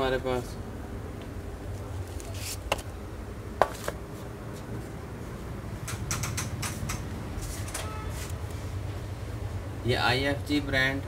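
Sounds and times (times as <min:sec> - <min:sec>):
shop background hum: 0:00.0 - 0:11.0
sharp click: 0:05.8 - 0:07.1.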